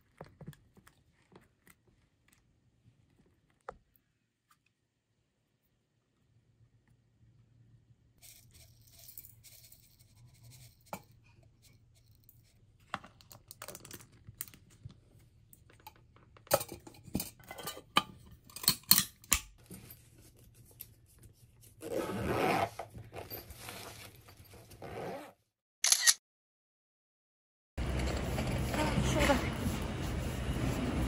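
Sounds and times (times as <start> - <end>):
rustling and scraping: 22.5 - 25.0, 27.8 - 31.0.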